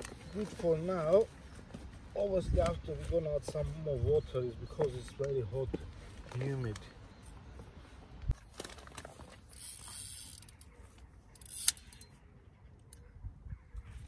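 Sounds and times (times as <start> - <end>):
fishing reel ratcheting clicks: 9.5 - 10.7, 11.4 - 12.2.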